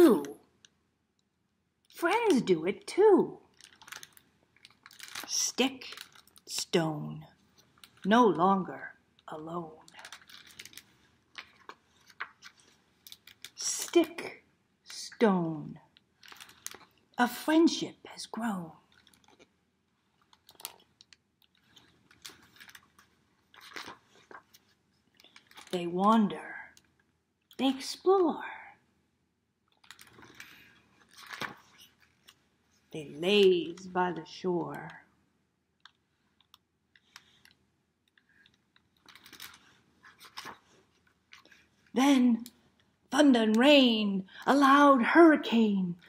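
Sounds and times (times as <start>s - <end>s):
book page turning: 3.5s - 6.6s, 9.9s - 14.2s, 16.2s - 17.0s, 20.2s - 25.8s, 29.8s - 34.4s, 37.0s - 42.0s.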